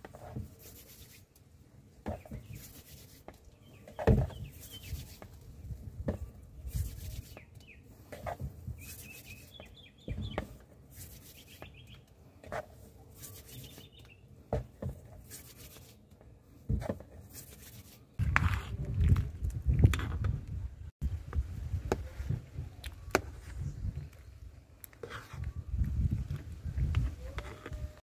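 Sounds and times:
small birds chirping: 2.0 - 5.8, 6.6 - 12.2, 13.1 - 14.3
knocks and handling noise: 16.0 - 17.3.

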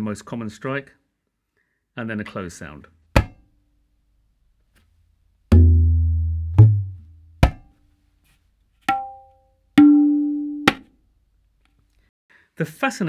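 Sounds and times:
tabla strokes: 5.5 - 7.7.

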